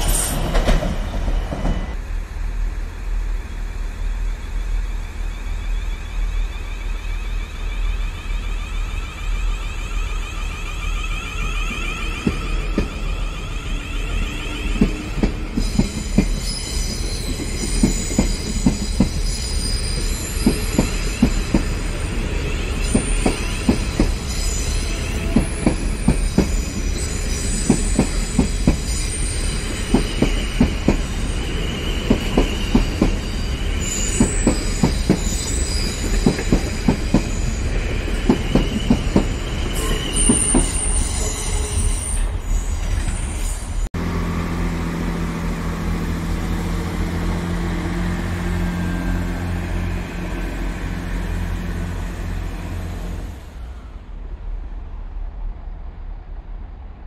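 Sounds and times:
high squealing tones: 5.6s - 43.9s.

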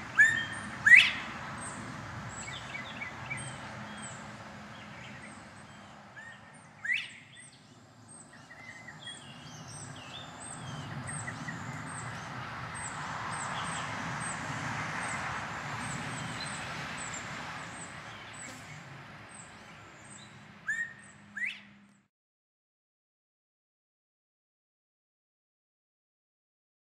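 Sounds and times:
bobwhite whistling call: 0.1s - 1.3s, 6.2s - 7.6s, 20.7s - 21.7s.

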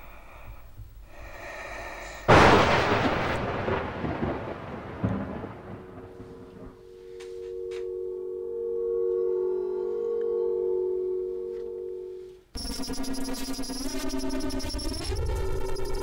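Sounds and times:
loud boom with rumble: 2.3s - 6.8s
low steady tone: 5.8s - 16.0s.

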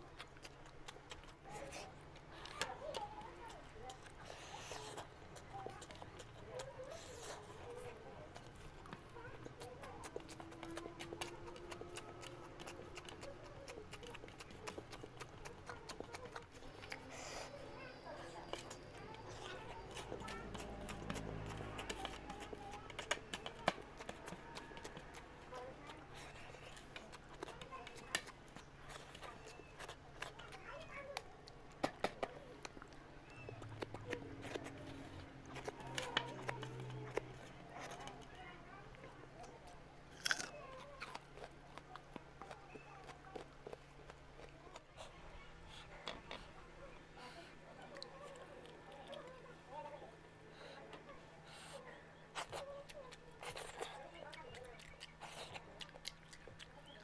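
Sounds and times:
chewing: 0.0s - 57.0s
fingers squishing food: 0.0s - 57.0s
wet mouth smacks chewing: 51.5s - 57.0s.

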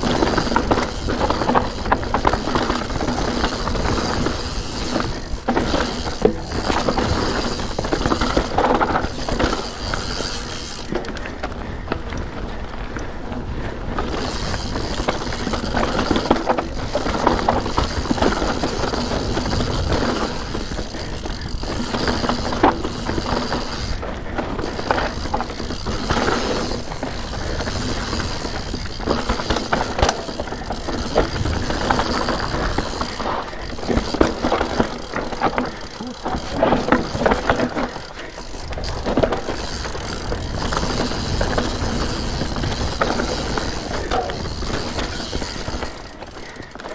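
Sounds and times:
bike rattling: 0.0s - 46.9s
bike tyres rolling over stones: 0.0s - 46.9s
bike knocking on rocks: 14.0s - 46.9s.

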